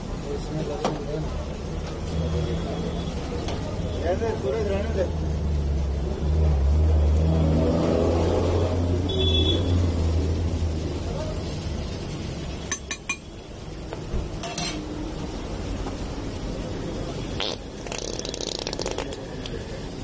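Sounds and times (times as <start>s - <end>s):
metal spatula clinking on griddle: 12.7s - 13.3s, 14.4s - 14.9s.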